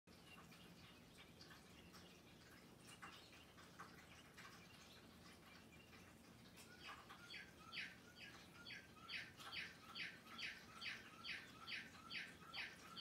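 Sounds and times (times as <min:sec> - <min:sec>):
small bird calling: 0:02.9 - 0:13.0.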